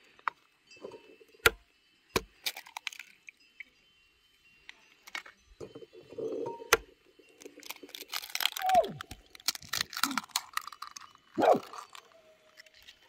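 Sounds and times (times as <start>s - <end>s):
eggshells cracking on a bowl: 2.2s - 3.2s, 6.7s - 13.0s
small crackling clicks: 6.7s - 13.0s
dog whining: 8.6s - 9.1s, 11.4s - 12.2s.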